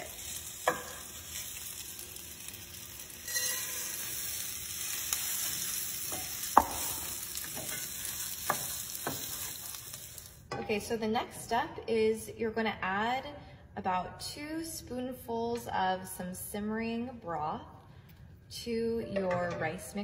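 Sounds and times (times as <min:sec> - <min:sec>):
shallots sizzling in oil: 0:00.0 - 0:10.5.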